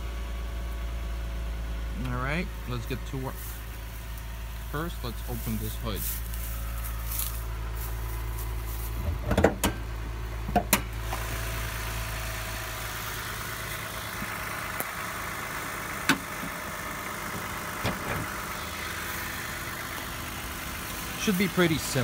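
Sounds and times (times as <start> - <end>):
car engine idling: 0.0 - 22.0
hood latch clunks and clicks: 9.0 - 9.8, 10.5 - 10.9, 17.3 - 18.3.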